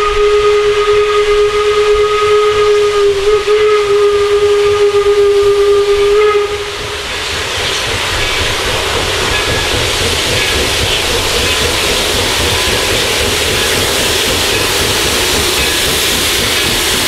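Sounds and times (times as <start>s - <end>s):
steam whistle: 0.0s - 7.3s
steam locomotive rushing and rumbling: 0.0s - 17.0s.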